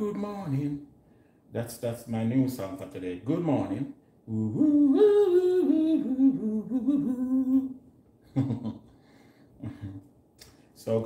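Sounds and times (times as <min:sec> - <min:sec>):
man humming: 0:04.3 - 0:07.8, 0:09.6 - 0:10.1
short vocal sound: 0:04.3 - 0:07.8.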